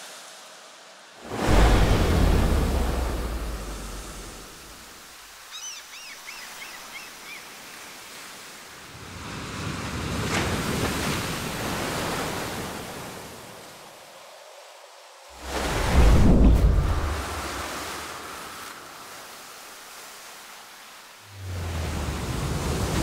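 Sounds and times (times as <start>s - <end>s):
ocean surf breaking: 1.1s - 5.4s, 6.6s - 13.6s, 15.3s - 23.0s.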